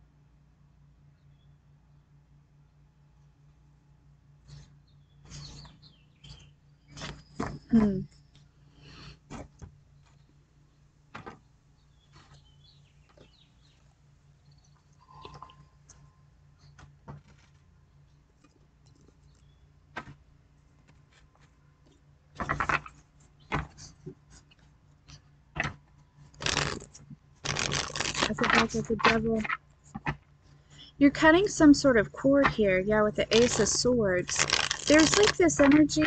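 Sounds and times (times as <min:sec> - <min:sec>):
cards shuffling: 0:22.4 - 0:24.6, 0:25.6 - 0:30.2, 0:33.3 - 0:36.0
cards clicking and tapping: 0:26.4 - 0:30.2.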